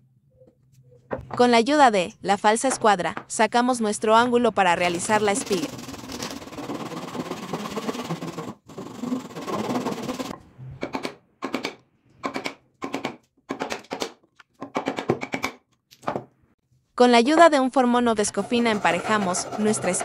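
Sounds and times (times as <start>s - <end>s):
hand saw cutting wood: 5.0s - 10.3s, 18.4s - 20.0s.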